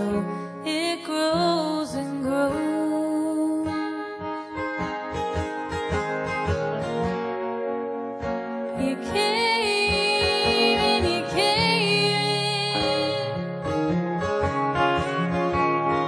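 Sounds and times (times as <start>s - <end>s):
woman singing: 0.0s - 4.4s, 8.7s - 13.4s
electric guitar: 0.0s - 16.0s
strummed acoustic guitar: 0.0s - 16.0s.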